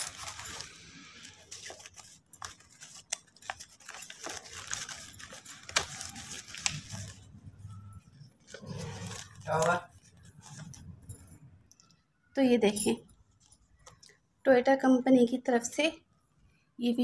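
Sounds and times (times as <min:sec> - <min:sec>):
plastic bag crinkles: 0:00.0 - 0:10.9
paper rustling and scraping: 0:00.0 - 0:11.1.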